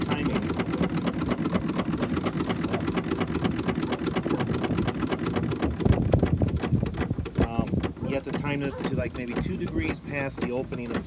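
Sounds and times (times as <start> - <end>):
steam engine ticking rhythm: 0.0 - 11.0.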